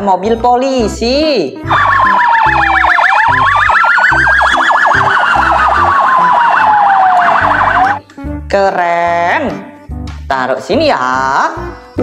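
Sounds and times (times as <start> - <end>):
police siren wailing and yelping: 1.7 - 8.0
background music with beat: 1.7 - 8.4, 9.4 - 10.4.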